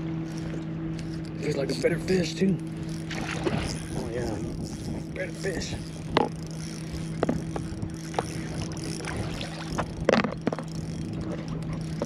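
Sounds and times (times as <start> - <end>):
steady low hum: 0.0 - 12.0
fish thrashing and splashing: 2.7 - 12.0.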